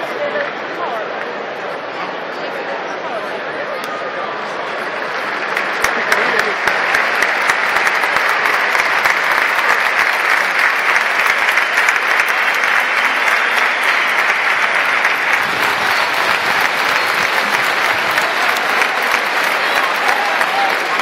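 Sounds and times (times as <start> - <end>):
crowd applauding: 4.5 - 21.0.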